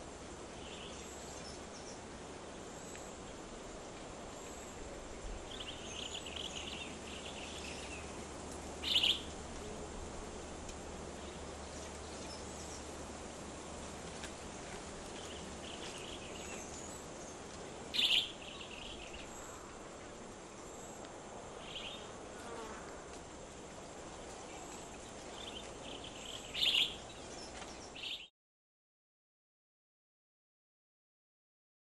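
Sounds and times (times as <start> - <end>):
insects buzzing: 0.0 - 28.2
short bird calls: 8.8 - 9.3, 18.0 - 18.4, 26.5 - 27.0.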